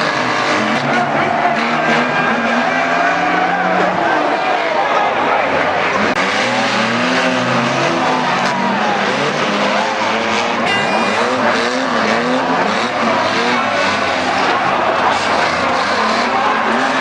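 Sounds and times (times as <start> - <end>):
race car engines revving: 0.0 - 17.0.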